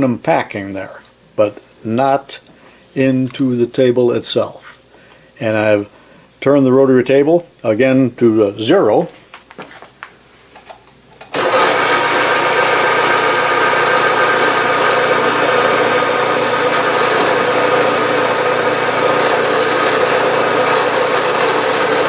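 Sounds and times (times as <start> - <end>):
milling machine drilling hum: 11.3 - 22.0.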